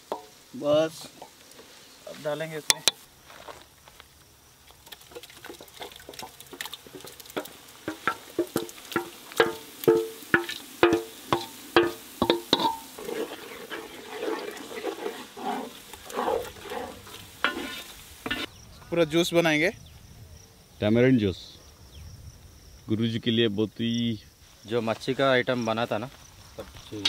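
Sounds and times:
metal ladle clinking on pots: 5.5 - 14.6
ladle scraping paste: 10.4 - 18.5.

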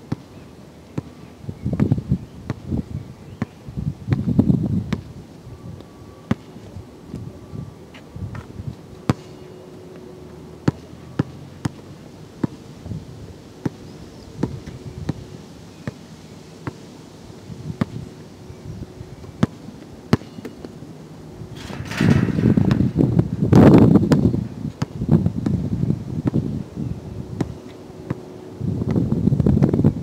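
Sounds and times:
wind on microphone: 1.4 - 5.8, 21.4 - 27.6, 28.6 - 30.0.

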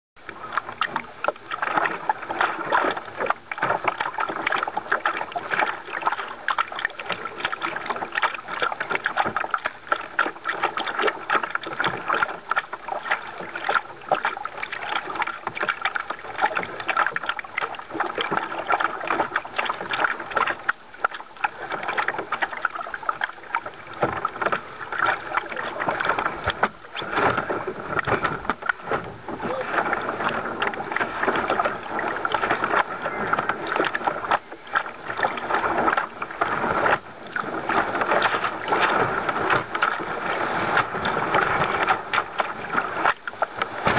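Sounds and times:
whitewater rushing: 29.3 - 34.3.

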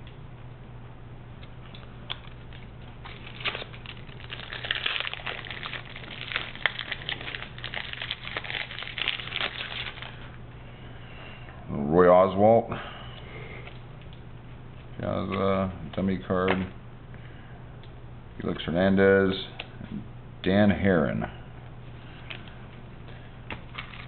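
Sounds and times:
low hum: 0.0 - 24.0
foil wrapper crinkling and tearing: 2.1 - 10.3, 23.5 - 24.0.

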